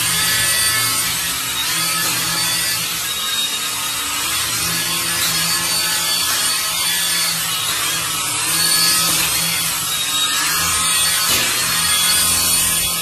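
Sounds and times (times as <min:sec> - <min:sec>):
toy motor and rotors whirring: 0:00.0 - 0:13.0.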